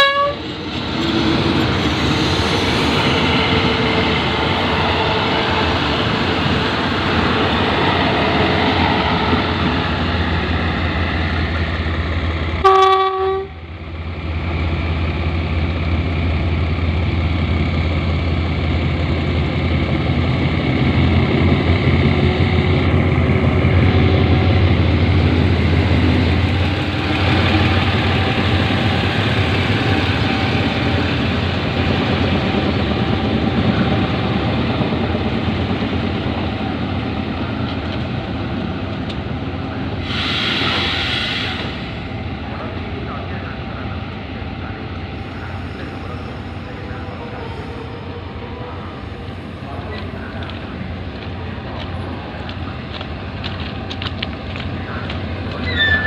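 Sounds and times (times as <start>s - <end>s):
train horn toot: 0.0s - 0.4s, 12.6s - 13.6s
locomotive engine drone: 0.0s - 56.0s.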